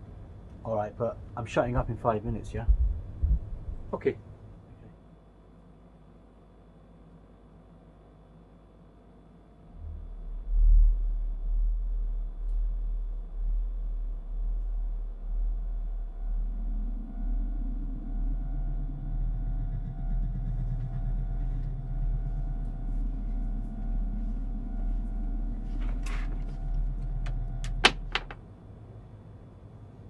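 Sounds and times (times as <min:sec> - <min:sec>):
low pulsing rumble: 0:00.0 - 0:04.9, 0:09.6 - 0:30.0
faint hum: 0:00.0 - 0:30.0
thin steady tones: 0:09.7 - 0:29.5.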